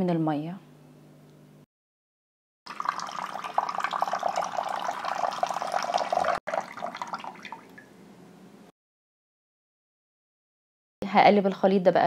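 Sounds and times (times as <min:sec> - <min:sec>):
water pouring into a bowl: 0:02.7 - 0:07.9.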